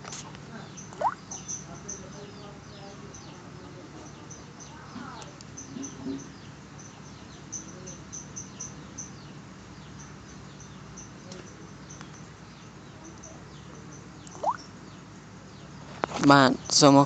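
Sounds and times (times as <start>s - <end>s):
small animal high chirps: 0.8s - 1.7s, 14.3s - 14.7s.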